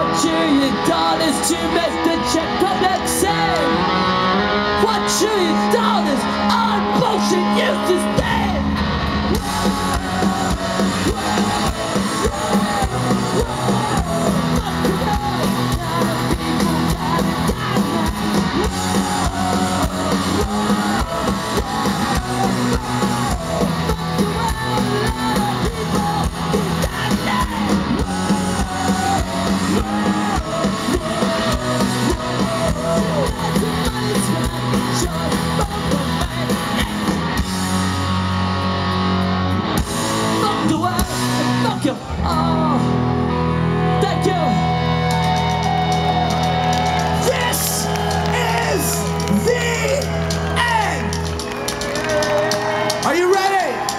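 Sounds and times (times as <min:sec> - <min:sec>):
punk rock band playing live: 0:00.0 - 0:53.9
person singing: 0:09.3 - 0:37.2
drum beat: 0:09.4 - 0:36.4.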